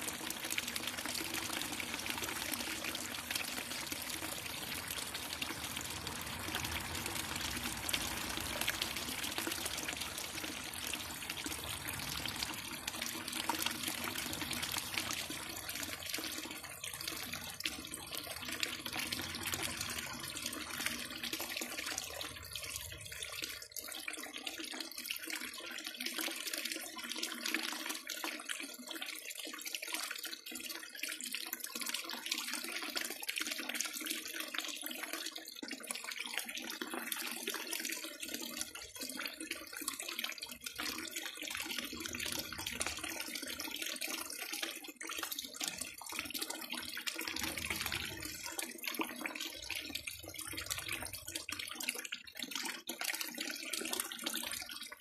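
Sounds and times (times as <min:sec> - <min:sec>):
water splashing into pool: 0:00.0 - 0:22.3.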